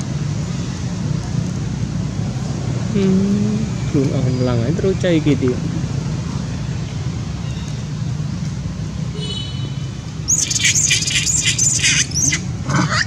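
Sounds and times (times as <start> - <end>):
monkey high-pitched shrieks: 10.3 - 13.0.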